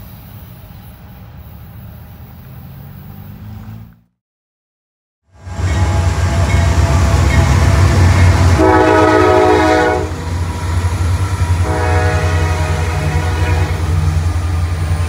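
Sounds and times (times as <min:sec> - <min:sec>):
diesel locomotive engine rumble: 0:00.0 - 0:04.1, 0:05.3 - 0:15.0
multi-note train horn: 0:05.3 - 0:14.8.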